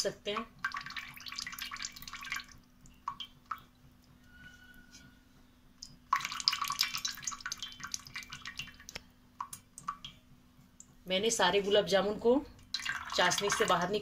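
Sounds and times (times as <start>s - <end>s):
syrup dripping into bowl: 5.8s - 10.2s.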